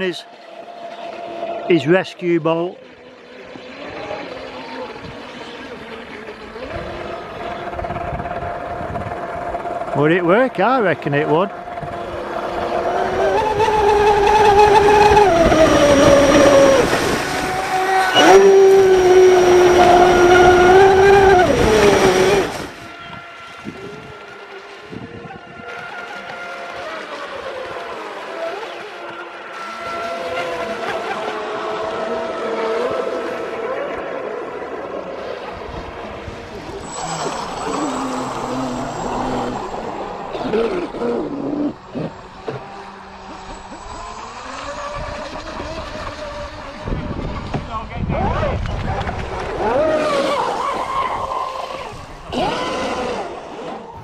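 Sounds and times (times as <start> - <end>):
rc speedboat motor whine: 0.0 - 54.0
wind: 0.0 - 54.0
water spray rushing: 36.7 - 45.7.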